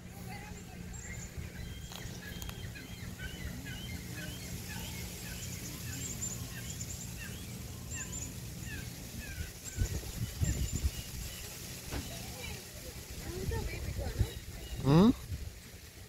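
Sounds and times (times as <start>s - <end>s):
birds chirping: 0.0s - 15.9s.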